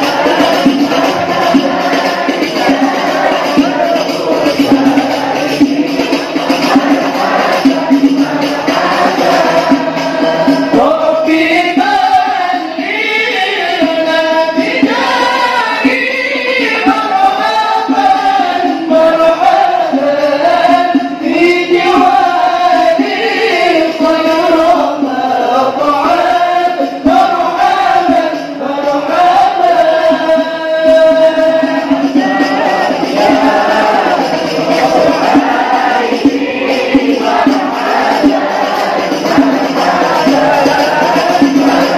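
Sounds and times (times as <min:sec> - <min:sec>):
group of voices chanting: 0:00.0 - 0:11.1, 0:31.6 - 0:41.9.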